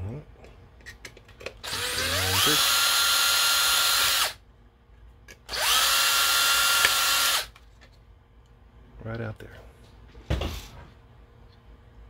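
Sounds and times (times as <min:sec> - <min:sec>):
cordless drill whining: 0:01.6 - 0:04.4, 0:05.5 - 0:07.5.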